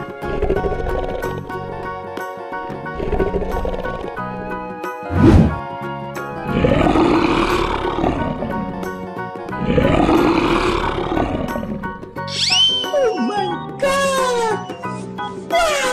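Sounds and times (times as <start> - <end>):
background music: 0.0 - 15.9
lion roaring: 6.4 - 8.9, 9.6 - 12.0.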